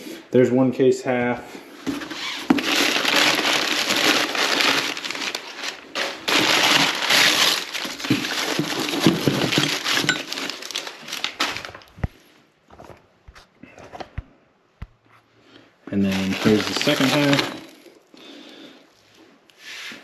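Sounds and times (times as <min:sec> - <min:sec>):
packing paper rustling: 0:01.8 - 0:13.0, 0:16.0 - 0:18.1.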